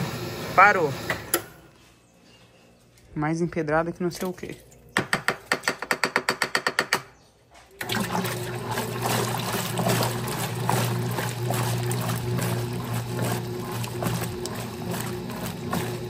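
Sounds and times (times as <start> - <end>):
fill valve hum: 7.8 - 16.0
water rushing into washer tub: 7.8 - 16.0.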